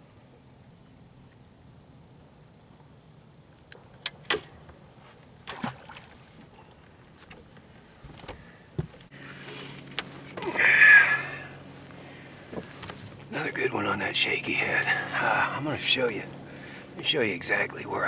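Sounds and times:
steady low hum: 0.0s - 18.0s
loud scraping rustle: 9.2s - 13.2s.

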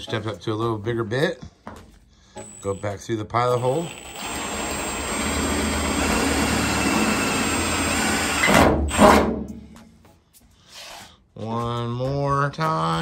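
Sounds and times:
drill boring through sheet metal: 2.4s - 2.9s, 3.5s - 9.2s
drill grinding bursts: 2.4s - 2.9s, 3.5s - 9.0s.

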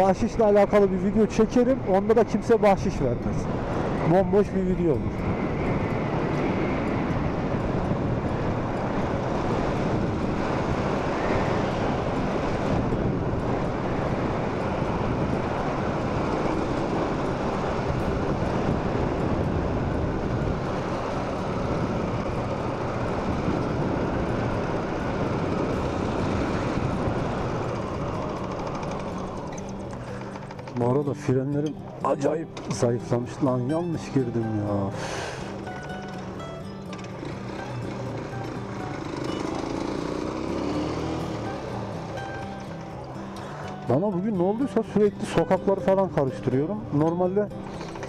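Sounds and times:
wind noise: 2.3s - 30.5s
motorcycle engine drone: 3.2s - 31.0s, 35.5s - 43.9s.

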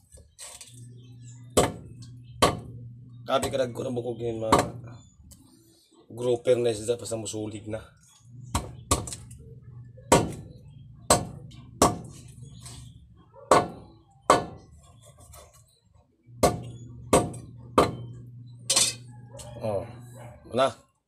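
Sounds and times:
knife chopping on wooden board: 1.6s - 1.8s, 2.4s - 2.7s, 4.5s - 4.8s, 10.1s - 10.4s, 11.1s - 12.2s, 16.4s - 18.0s.

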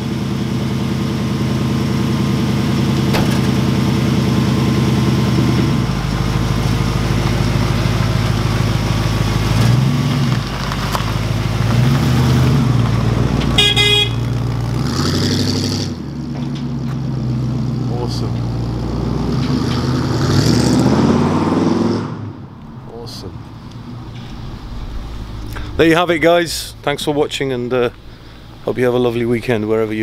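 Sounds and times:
truck engine running: 0.0s - 20.9s, 22.4s - 30.0s
horn toot: 13.5s - 14.4s.

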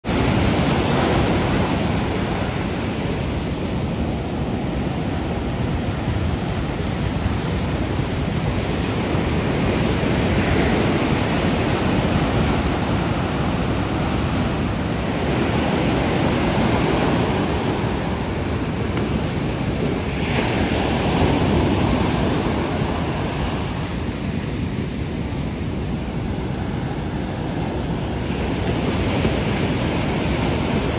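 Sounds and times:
ocean surf breaking: 0.0s - 30.9s.

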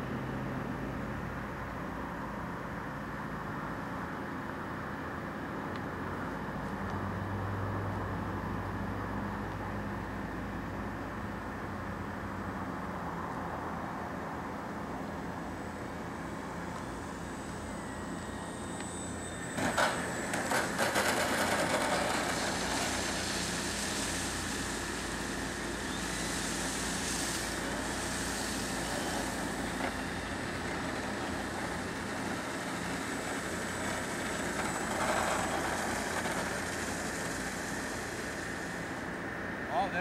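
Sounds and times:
electric motor whining: 17.0s - 39.0s
wheels clattering on pavement: 19.6s - 23.2s.

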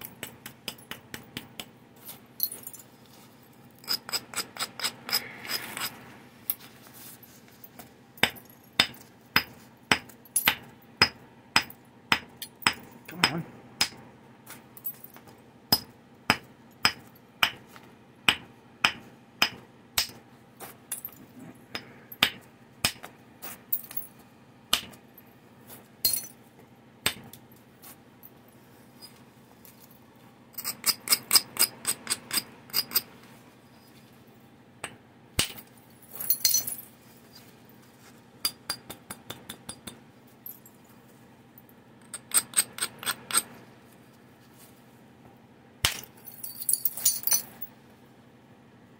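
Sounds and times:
abrader rasping stone edge: 3.8s - 6.0s.

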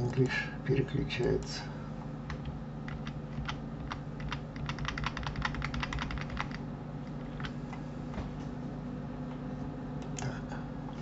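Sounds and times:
low steady hum: 0.0s - 11.0s
keyboard keystrokes: 2.3s - 6.6s.

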